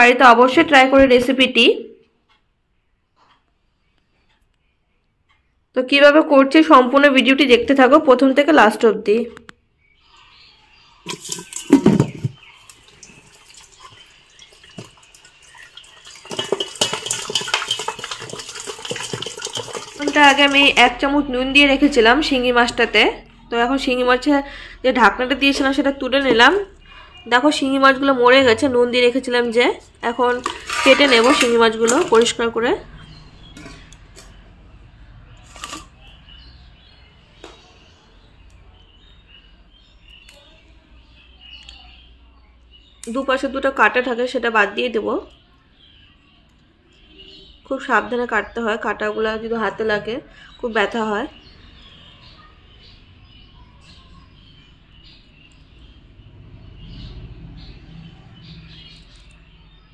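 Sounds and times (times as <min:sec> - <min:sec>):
wet fish scraping in metal bowl: 0:11.0 - 0:20.8, 0:30.1 - 0:32.4, 0:35.4 - 0:36.0
water splashing in a pot: 0:11.0 - 0:21.0, 0:30.3 - 0:32.4.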